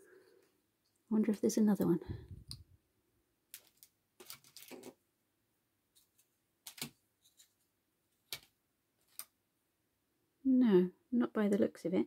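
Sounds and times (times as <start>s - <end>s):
acrylic charms clicking: 3.5s - 4.9s, 6.6s - 6.9s.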